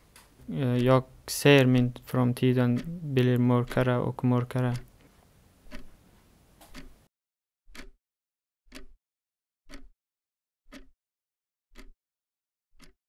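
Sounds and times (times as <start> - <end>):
faint background noise: 0.0 - 7.0
clock ticking: 0.4 - 6.0, 6.6 - 7.1, 7.7 - 8.0, 8.7 - 9.0, 9.7 - 9.9, 10.7 - 10.9, 11.8 - 12.0, 12.8 - 13.0.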